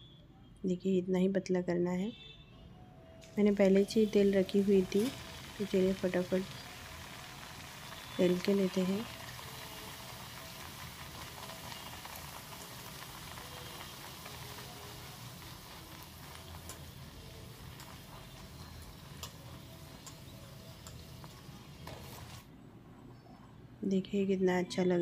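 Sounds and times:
oil sizzling and bubbling: 0:03.2 - 0:22.5.

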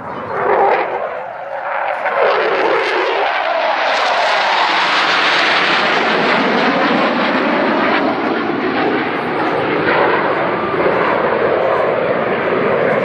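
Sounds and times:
jet fighters flying overhead: 0:00.0 - 0:13.0.

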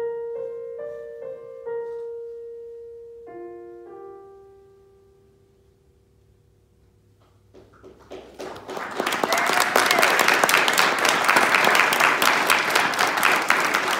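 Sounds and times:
digital piano chord: 0:00.0 - 0:06.4
audience applause: 0:07.8 - 0:13.9.

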